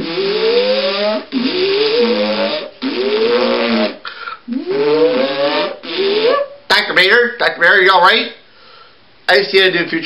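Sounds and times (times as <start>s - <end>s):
person imitating whirring machine: 0.0s - 6.9s.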